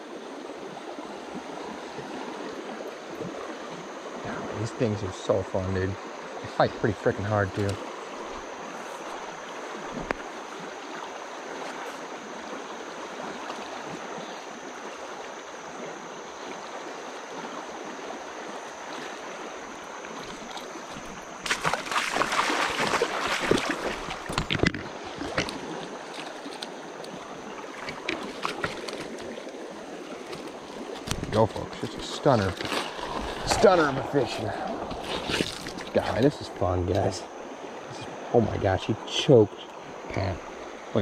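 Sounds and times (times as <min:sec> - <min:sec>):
flowing river water: 0:00.0 - 0:41.0
splashing and knocking: 0:20.1 - 0:29.6, 0:30.2 - 0:33.7, 0:34.9 - 0:36.2.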